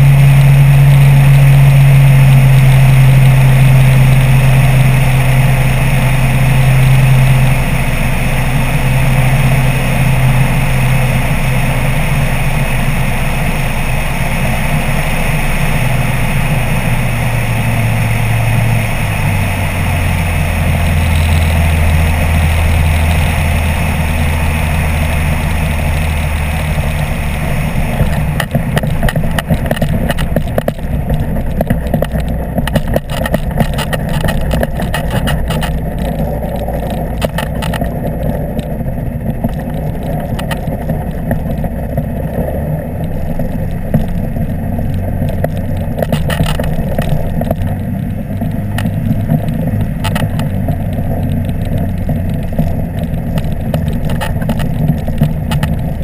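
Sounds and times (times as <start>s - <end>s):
microlight engine running: 0.0s - 56.0s
knocks and rattles: 27.9s - 56.0s.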